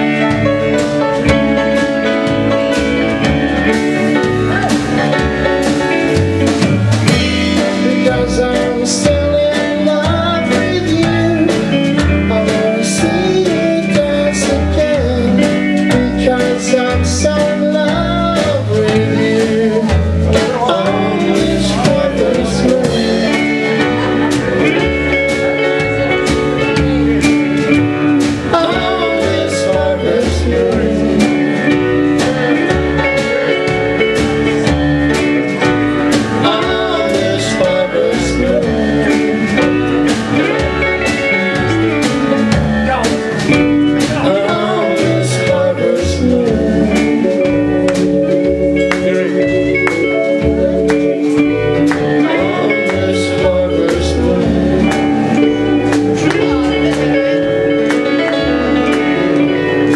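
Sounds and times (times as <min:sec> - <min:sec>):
live band playing country-rock: 0:00.0 - 0:59.9
person singing: 0:00.0 - 0:59.9.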